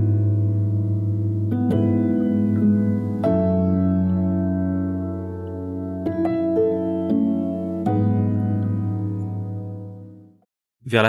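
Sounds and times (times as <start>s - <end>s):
soft instrumental music: 0.0s - 10.5s.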